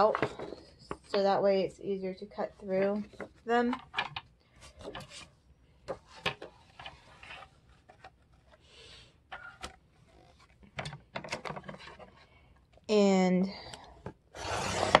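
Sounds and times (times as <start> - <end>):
paper pages rustling: 9.3 - 12.2.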